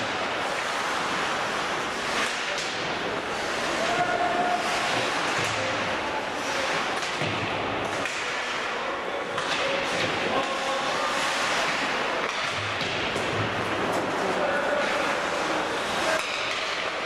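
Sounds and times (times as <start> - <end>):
skating rink noise: 0.0 - 17.0
stick and puck knocks: 12.2 - 13.5.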